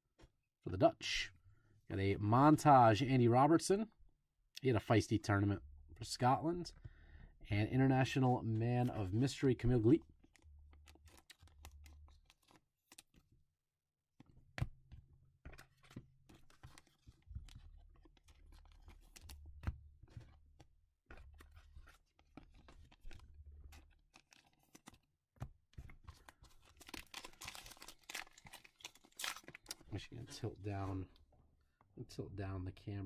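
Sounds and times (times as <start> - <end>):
trading cards clicking and rustling: 8.6 - 13.3, 14.2 - 30.4
foil pack tearing and crinkling: 26.6 - 29.8.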